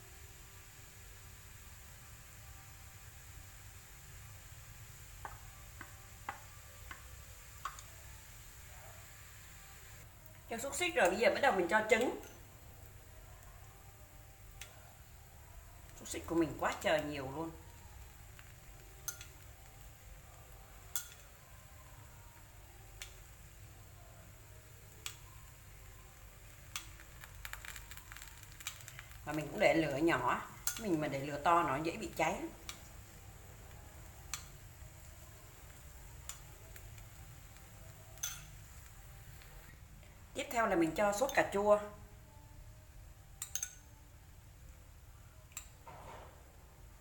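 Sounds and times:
food frying in a pan: 0.0s - 39.8s
metal spoon clinking on pan: 18.4s - 19.9s, 20.7s - 21.4s, 30.5s - 31.0s, 38.1s - 38.8s, 43.4s - 43.9s.

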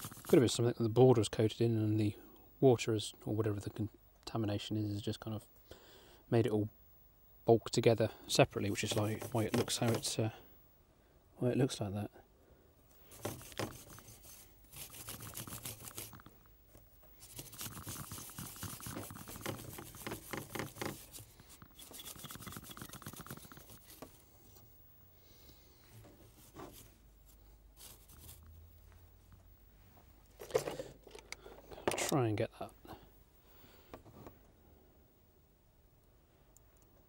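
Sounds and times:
stiff brush scrubbing circuit board: 0.0s - 0.6s, 8.6s - 10.2s, 13.0s - 16.3s, 17.2s - 24.2s.

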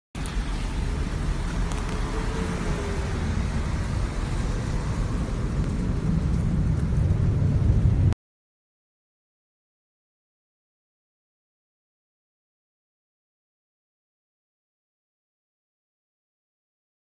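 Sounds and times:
rain hiss: 0.2s - 8.0s
traffic rumble: 0.2s - 8.2s.

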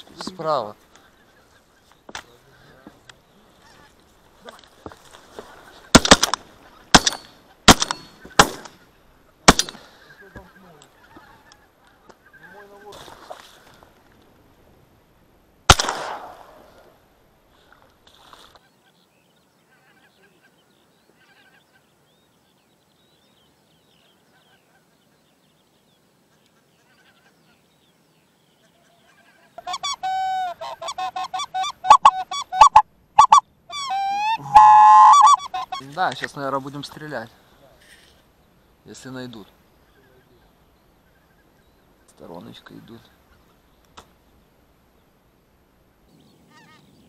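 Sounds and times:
geese honking: 28.6s - 36.3s.

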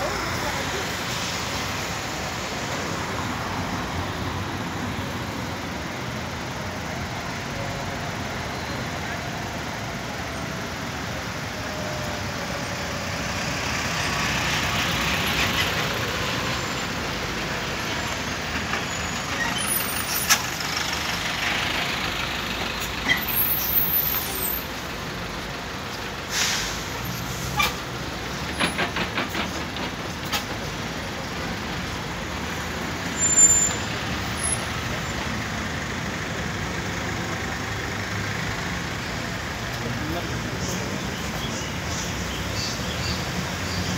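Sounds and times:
traffic noise: 0.0s - 43.9s
short hiss: 26.3s - 27.8s.

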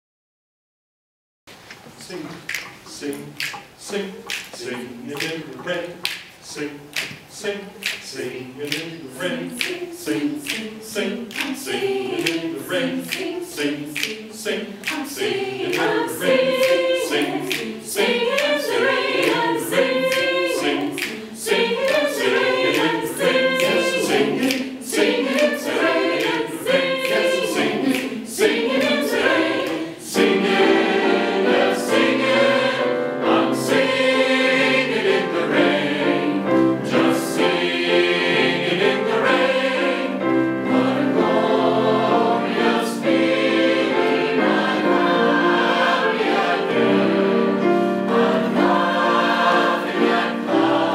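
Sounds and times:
sharp clicks keeping the beat: 2.0s - 32.4s
choir singing in close harmony: 3.0s - 50.9s.

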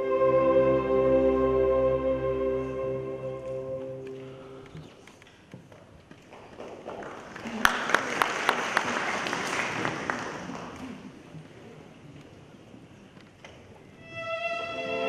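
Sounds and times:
audience applause: 6.2s - 11.2s.

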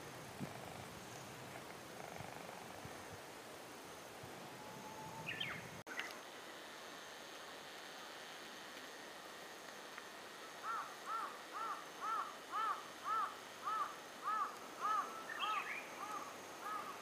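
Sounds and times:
bird chirp: 4.6s - 5.7s
crow cawing: 10.6s - 15.2s, 16.0s - 17.0s.

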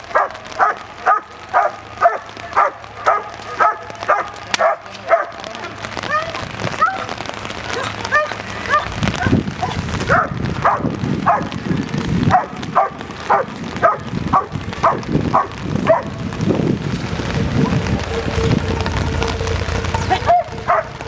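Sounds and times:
dog barking: 0.1s - 5.5s, 9.6s - 11.5s, 12.3s - 16.2s, 20.3s - 20.9s.

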